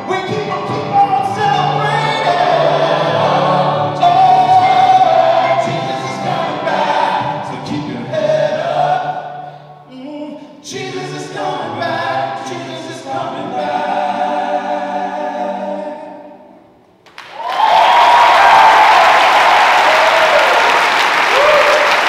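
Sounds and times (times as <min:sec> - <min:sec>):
choir singing gospel song: 0:00.0 - 0:16.6
audience applause: 0:17.1 - 0:22.0.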